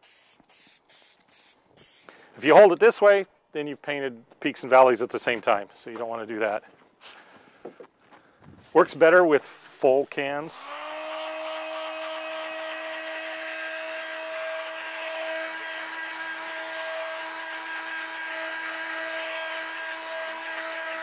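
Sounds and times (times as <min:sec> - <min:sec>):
heat gun fan motor humming: 0:10.5 - 0:21.0.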